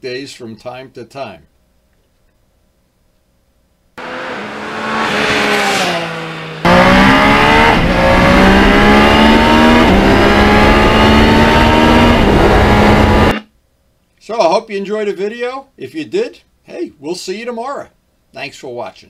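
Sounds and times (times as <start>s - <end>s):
motorcycle engine accelerating: 4.0s - 13.4s.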